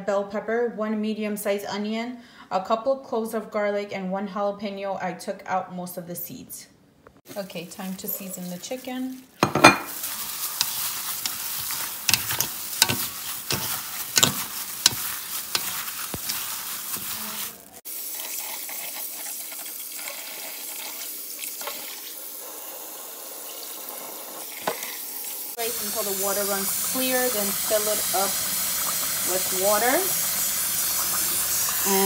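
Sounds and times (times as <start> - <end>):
wet squishing of raw chicken: 10.0 - 17.8
clicks and knocks against metal bowl: 14.2 - 15.0
tap water running into bowl: 26.7 - 32.0.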